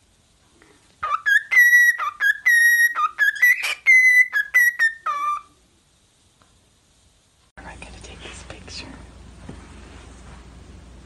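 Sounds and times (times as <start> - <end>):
cockatiel whistling a tune: 1.0 - 5.5.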